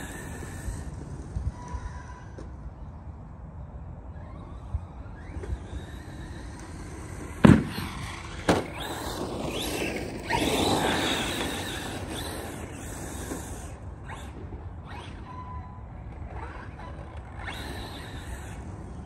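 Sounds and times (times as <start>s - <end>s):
electric motor whine: 0.0s - 2.9s, 4.0s - 19.0s
toy truck thumping on ground: 7.3s - 13.6s.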